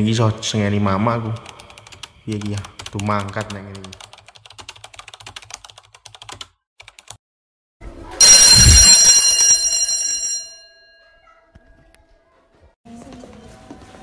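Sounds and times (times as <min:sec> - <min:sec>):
bell-like ring: 0:08.2 - 0:11.6
low thud: 0:08.5 - 0:09.1.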